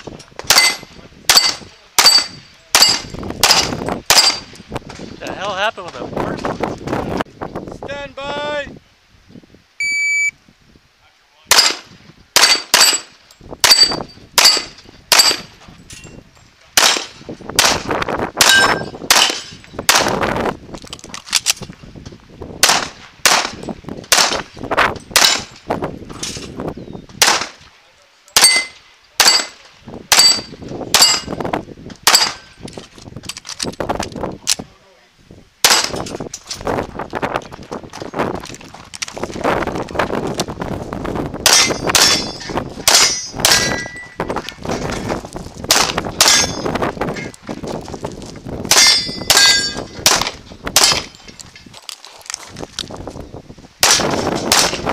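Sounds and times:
pistol shots: 0.5s - 4.5s, 11.5s - 15.5s, 16.8s - 20.2s, 22.6s - 24.5s, 25.1s - 25.6s, 27.2s - 27.6s, 28.4s - 31.3s, 32.0s - 32.4s, 35.6s - 36.0s, 41.4s - 43.8s, 45.7s - 46.6s, 48.7s - 51.2s, 53.8s - 54.9s
shot timer beep: 9.8s - 10.4s
steel target ringing: 12.4s - 15.4s, 18.4s - 19.6s, 28.4s - 31.4s, 46.2s - 46.7s, 48.7s - 50.0s.

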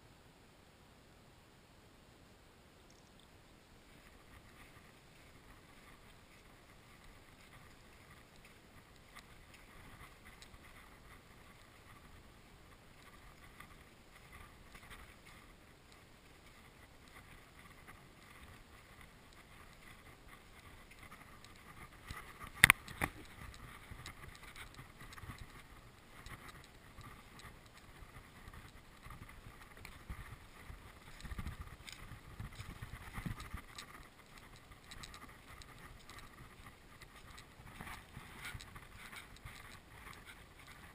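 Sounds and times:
outdoor background hiss: 0.0s - 40.9s.

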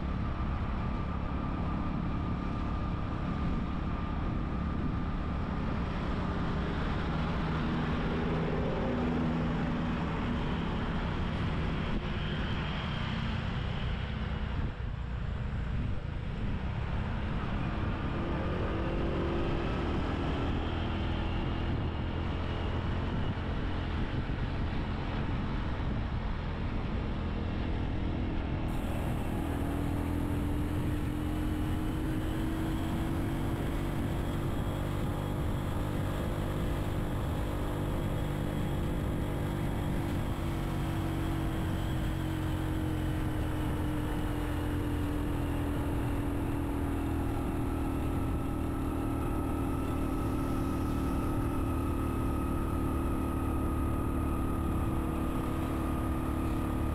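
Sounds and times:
wind and road noise: 0.0s - 56.9s
motorbike engine running: 28.7s - 45.1s.

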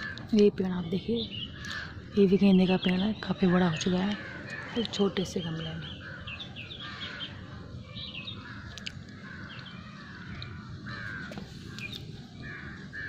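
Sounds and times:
crows cawing: 0.0s - 0.3s, 1.5s - 2.3s, 4.0s - 5.2s, 5.8s - 7.5s, 8.3s - 13.0s.

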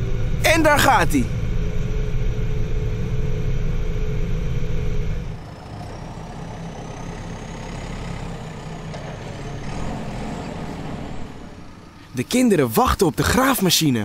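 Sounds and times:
faint high whine: 0.0s - 5.5s
diesel engine running: 0.0s - 14.0s.

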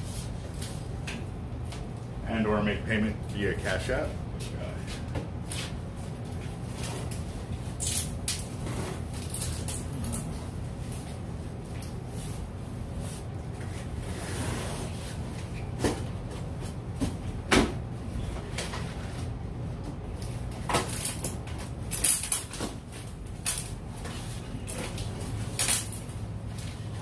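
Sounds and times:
steady low hum: 0.0s - 27.0s
cardboard box rustling and scraping: 13.0s - 15.6s.

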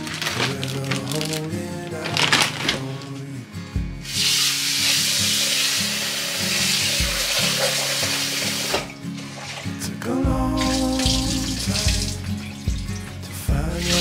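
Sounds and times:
faucet running into steel sink: 4.1s - 9.8s.

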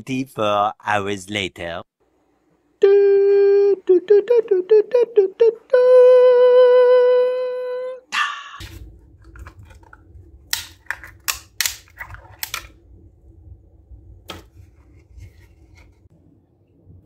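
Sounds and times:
low steady hum: 2.0s - 17.0s
plastic clicks and snaps: 9.3s - 12.8s.

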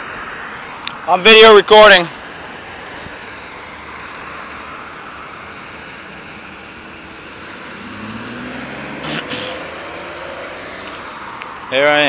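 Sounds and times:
road noise: 0.0s - 12.0s
car driving past: 5.7s - 11.7s.

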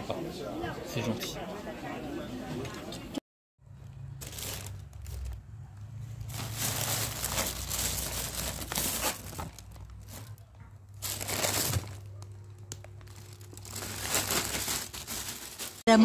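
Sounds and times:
plastic bag crinkling: 3.8s - 5.5s, 6.2s - 15.9s.

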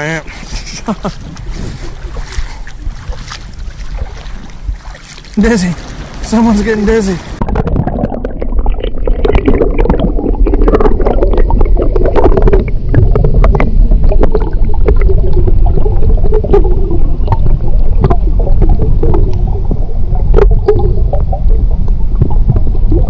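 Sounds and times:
muffled underwater rushing and gurgling: 0.0s - 23.0s
bubble clicks and pops: 7.4s - 23.0s.

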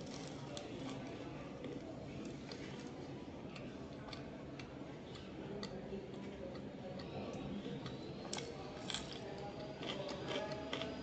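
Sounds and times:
person chewing and mouth sounds: 6.5s - 11.0s.

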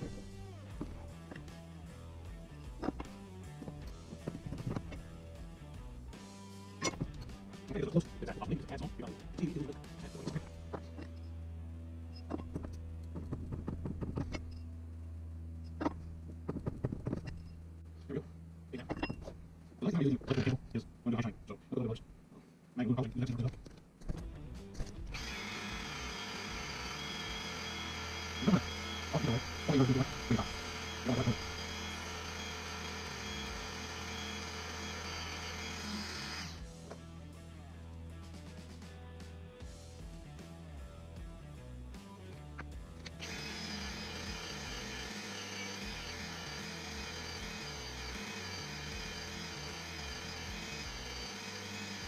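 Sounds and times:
steady low hum: 24.3s - 36.9s
motor whirring: 25.1s - 36.6s, 43.0s - 52.0s.

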